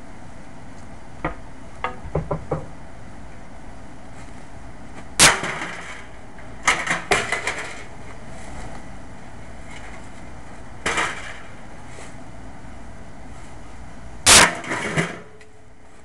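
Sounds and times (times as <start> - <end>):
axe knocking on sheet metal: 1.3 - 2.7
loud ringing metal clang: 5.2 - 6.1, 14.2 - 15.4
metal clanks and rattles: 5.2 - 7.9.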